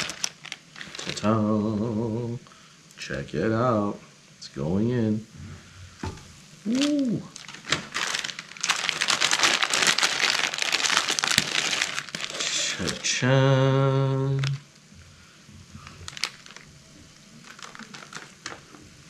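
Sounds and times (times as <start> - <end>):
plastic wrapper crinkling: 0.0 - 1.3, 6.6 - 13.4, 14.2 - 14.9, 15.8 - 19.0
man humming: 1.2 - 2.4, 6.6 - 7.4, 12.3 - 14.6.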